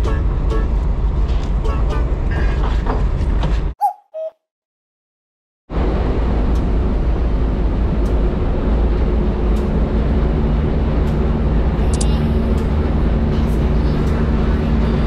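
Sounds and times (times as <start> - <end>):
engine droning: 5.7 - 15.0.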